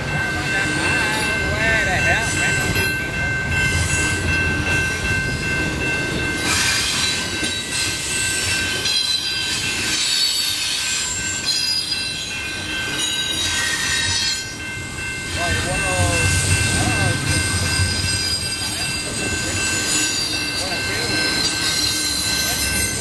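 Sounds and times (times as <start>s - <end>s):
freight train rumble and clatter: 0.0s - 23.0s
steel wheels squealing on rail: 6.1s - 23.0s.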